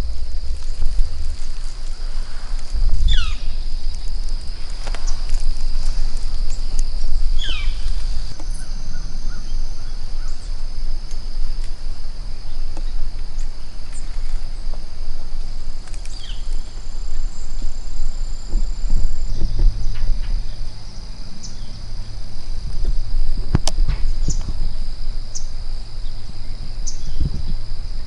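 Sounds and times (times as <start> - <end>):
wind rumble on microphone: 0.0 - 28.0
falling bird calls: 1.5 - 6.7, 7.3 - 10.6, 15.9 - 17.7.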